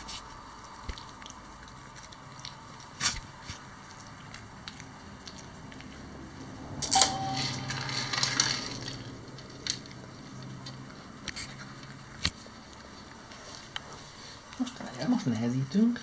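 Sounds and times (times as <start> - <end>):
dog eating with clicks: 0.0 - 16.0
treat dispenser beep: 6.8 - 8.4.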